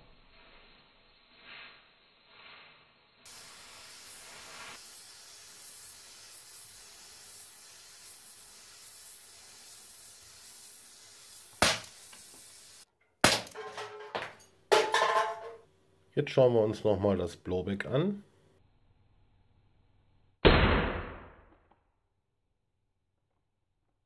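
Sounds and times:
faint steady hiss: 0.0 - 12.9
spray can knocked over: 11.3 - 12.5, 13.2 - 15.6
air pistol shot crack: 11.6 - 12.0, 20.4 - 21.5.

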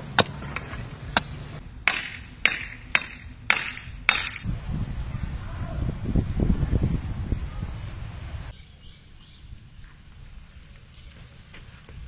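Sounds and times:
axe chopping wood: 0.0 - 1.3, 1.9 - 4.4.

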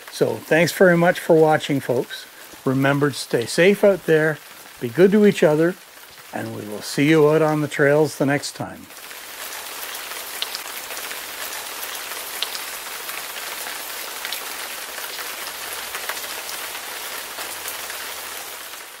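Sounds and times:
steady rain hiss: 0.0 - 19.0.

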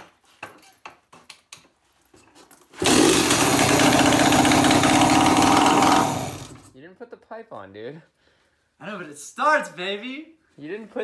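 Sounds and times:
two-stroke engine running: 2.8 - 6.7.

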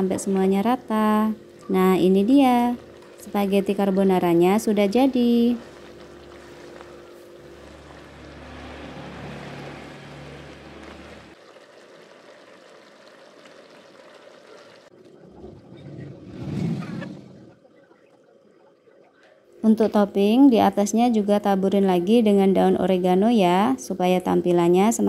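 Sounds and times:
spatula stirring pasta in a pan: 5.0 - 8.0.

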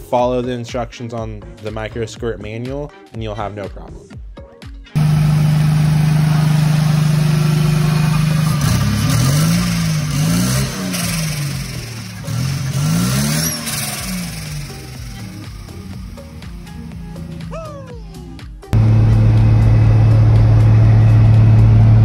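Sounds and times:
car engine revving: 5.0 - 22.0.

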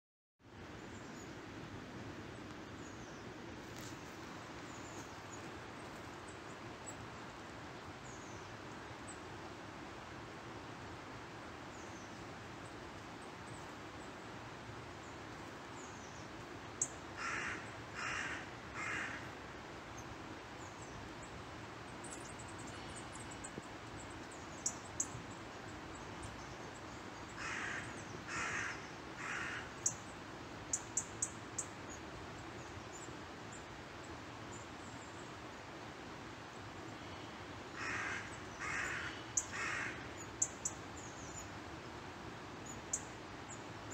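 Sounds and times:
woodland background hiss: 0.4 - 43.9
crow cawing: 17.2 - 19.3, 27.4 - 29.7, 37.7 - 40.0.

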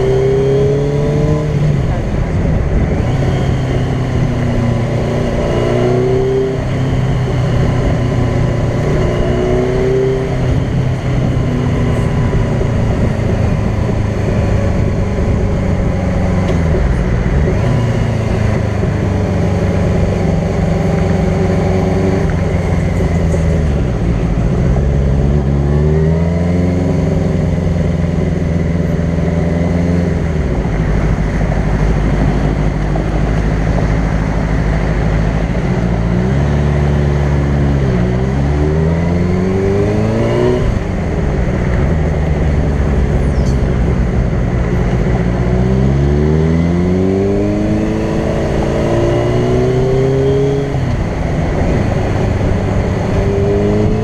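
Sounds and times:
motorcycle engine running: 0.0 - 54.0
wind and road noise: 0.0 - 54.0.

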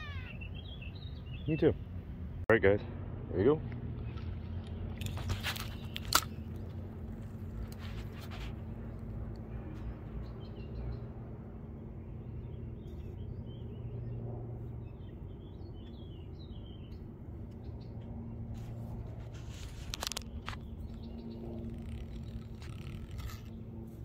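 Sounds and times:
small birds chirping: 0.0 - 1.9, 4.0 - 6.9, 12.0 - 24.0
low outdoor rumble: 0.0 - 24.0.

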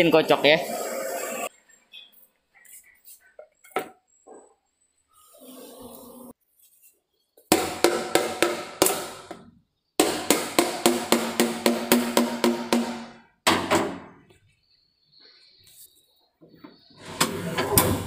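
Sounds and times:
hammering plastic pail lid: 7.5 - 9.4, 10.0 - 14.1.

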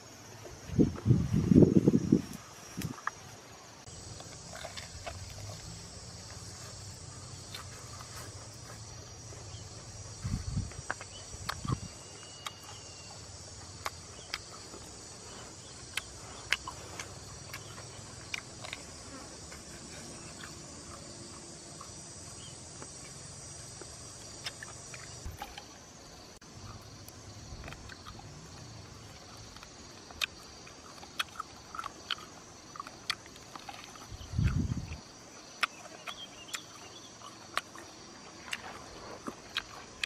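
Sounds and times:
high-pitched insect chorus: 0.0 - 40.0
person biting and chewing meat: 4.0 - 8.9, 29.4 - 34.7, 35.5 - 40.0.

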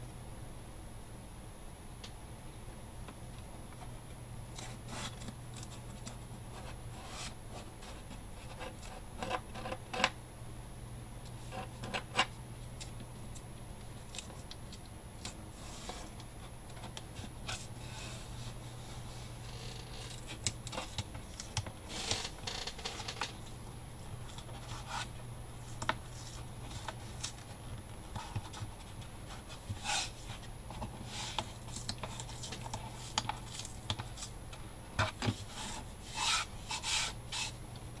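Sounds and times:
steady low hum: 0.0 - 38.0
cardboard rubbing and scraping: 4.6 - 5.9, 6.6 - 9.4, 15.5 - 16.2, 17.1 - 23.3, 24.4 - 34.3, 35.0 - 37.6.

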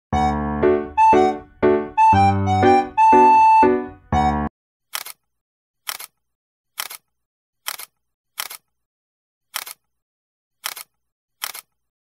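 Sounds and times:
camera shutter double clicks: 4.9 - 5.2, 6.8 - 7.0, 9.6 - 9.8, 10.6 - 11.7.

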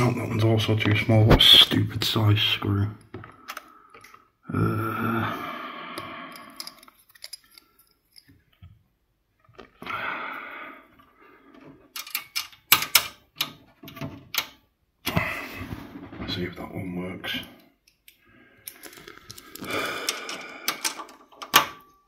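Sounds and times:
screwdriver bits rattling: 6.5 - 8.4.

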